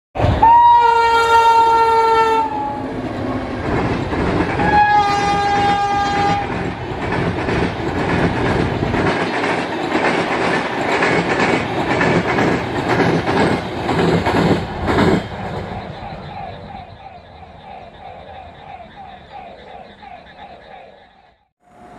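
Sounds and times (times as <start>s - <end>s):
locomotive horn blasts: 0.4s - 2.9s, 4.6s - 6.5s
train wheels clattering over rail joints: 3.6s - 15.8s.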